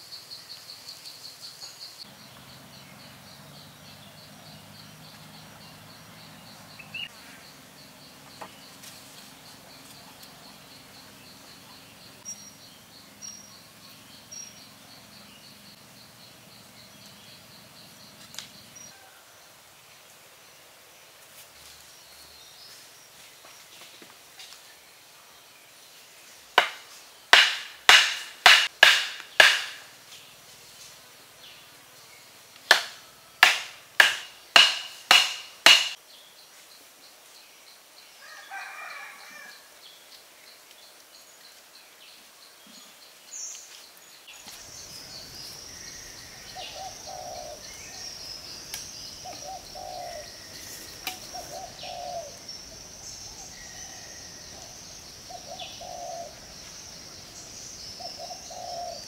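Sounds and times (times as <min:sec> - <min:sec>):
blade chopping wood: 0:26.6 - 0:26.8, 0:27.4 - 0:29.8, 0:32.7 - 0:36.0
steady high hiss: 0:39.6 - 0:59.0.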